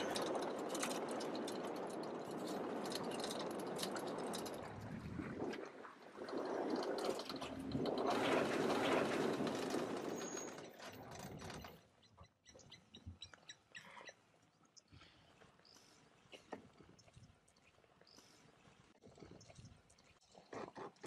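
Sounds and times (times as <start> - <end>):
faint chirps and clicks: 11.6 - 21.0.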